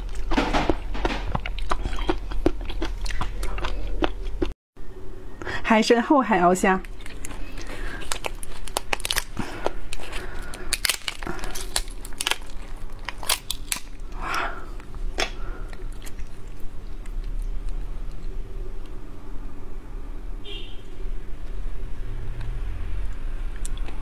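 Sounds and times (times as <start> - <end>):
chewing: 0.0 - 4.6, 6.8 - 19.0
shell cracking: 6.9 - 14.2.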